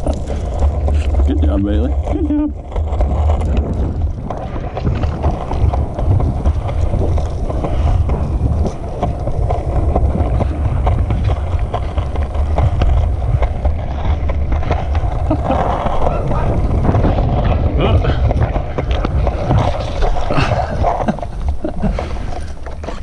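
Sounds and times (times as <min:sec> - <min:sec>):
skateboard wheels clacking over joints: 0:00.0 - 0:23.0
skateboard wheels rolling on concrete: 0:00.0 - 0:23.0
wind buffeting microphone: 0:00.0 - 0:23.0.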